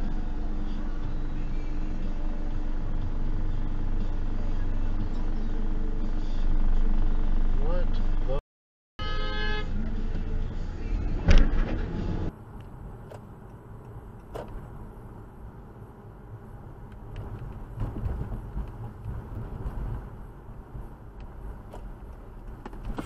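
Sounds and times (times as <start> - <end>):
car road and engine rumble: 0.0 - 8.4, 9.0 - 23.0.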